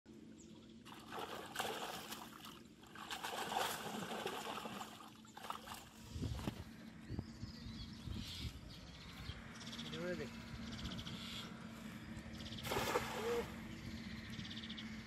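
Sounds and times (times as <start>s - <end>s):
water splashing and trickling: 0.8s - 6.6s, 12.6s - 13.7s.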